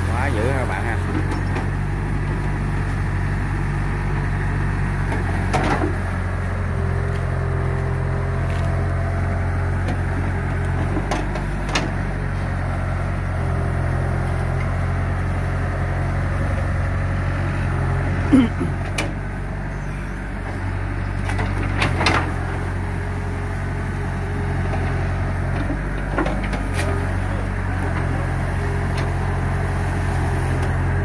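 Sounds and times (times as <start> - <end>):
excavator diesel engine running: 0.0 - 31.0
excavator knocks: 5.2 - 6.0.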